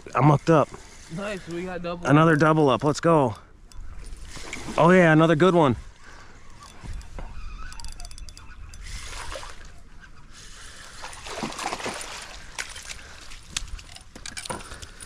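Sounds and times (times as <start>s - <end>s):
fish splashing water: 6.0s - 14.2s.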